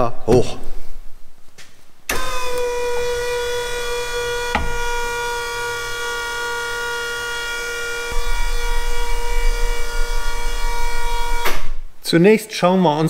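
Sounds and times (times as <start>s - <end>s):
hydraulic lift whine: 2.1s - 12.0s.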